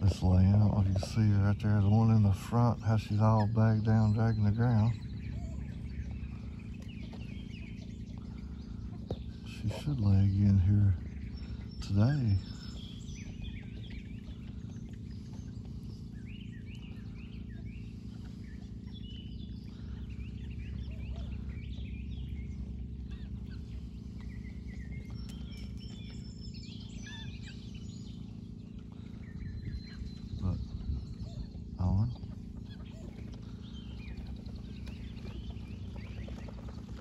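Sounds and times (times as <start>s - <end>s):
steady low hum: 0.0s - 37.0s.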